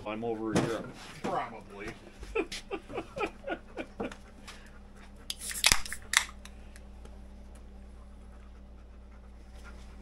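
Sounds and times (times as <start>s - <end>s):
beer cans cracking open: 5.4s - 6.5s.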